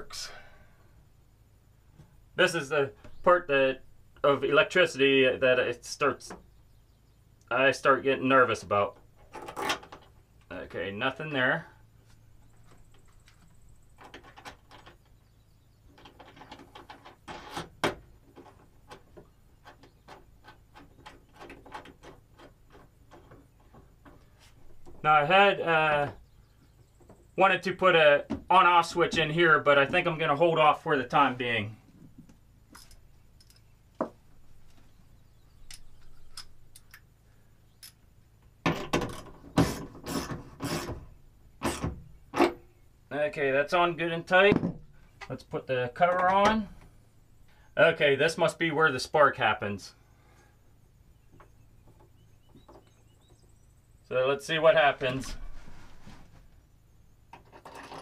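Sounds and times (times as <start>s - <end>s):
metal clicks of battery cables: 35.6s - 37.1s
hand tool rasping strokes: 39.6s - 41.0s.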